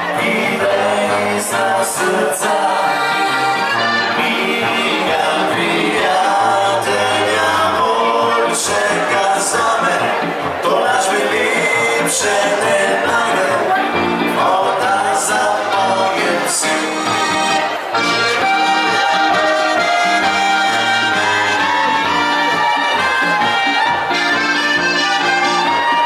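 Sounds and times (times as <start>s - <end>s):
accordion: 0.0s - 26.0s
brass band playing folk dance music: 0.0s - 26.0s.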